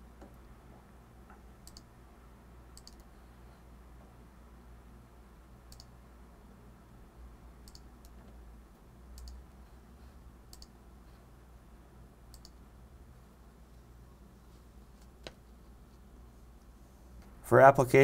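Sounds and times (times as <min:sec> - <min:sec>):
faint low hum: 0:00.0 - 0:18.0
computer mouse clicks: 0:01.3 - 0:01.9, 0:02.7 - 0:03.2, 0:05.7 - 0:06.0, 0:07.6 - 0:08.4, 0:09.1 - 0:09.5, 0:10.5 - 0:10.8, 0:12.3 - 0:12.6.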